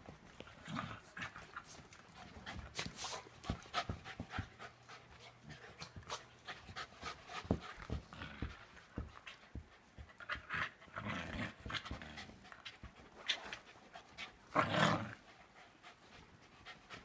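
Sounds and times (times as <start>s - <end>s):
dogs panting: 0.0s - 14.5s, 15.2s - 17.0s
dogs scuffling and mouthing: 0.0s - 14.5s.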